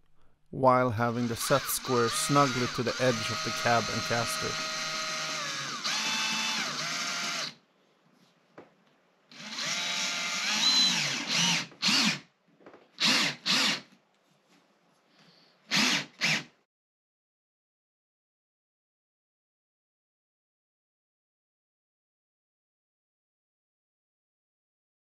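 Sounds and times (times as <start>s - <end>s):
cordless drill driving screws: 1.1s - 7.6s, 9.3s - 12.2s, 13.0s - 13.9s, 15.7s - 16.5s.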